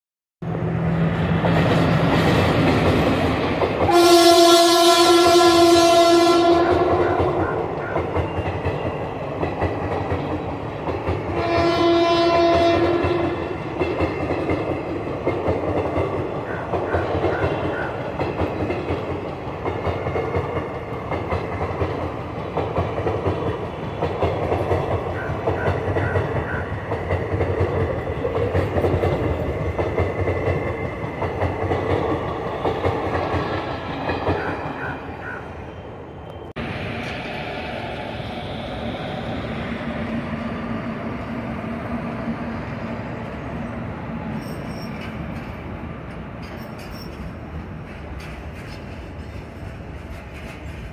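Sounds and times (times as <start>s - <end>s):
train coaches rumbling past: 0.4s - 50.9s
train horn: 3.9s - 8.0s, 11.3s - 13.6s
wheels clacking over rail joints: 6.5s - 35.5s, 44.2s - 50.9s.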